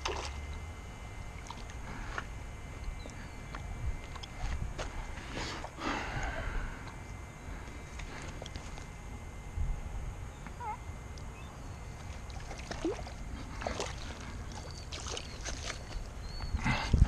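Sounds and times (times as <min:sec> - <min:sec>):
fish splashing in water: 0:00.0 - 0:00.5, 0:12.0 - 0:16.2
wind rumble on microphone: 0:01.8 - 0:05.4, 0:08.9 - 0:11.0, 0:15.8 - 0:17.0.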